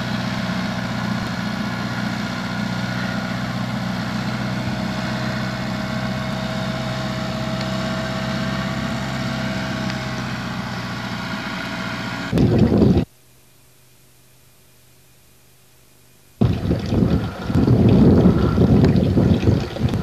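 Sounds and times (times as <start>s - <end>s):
vehicle engine running: 0.0s - 13.1s, 16.4s - 20.0s
faint hum: 12.3s - 20.0s.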